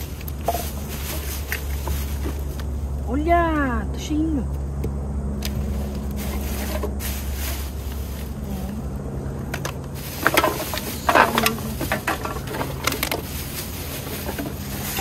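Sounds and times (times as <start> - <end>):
plastic bag rustling: 0.0 - 3.1, 5.4 - 15.0
low mechanical hum: 0.0 - 15.0
small bottles knocking together: 9.5 - 15.0.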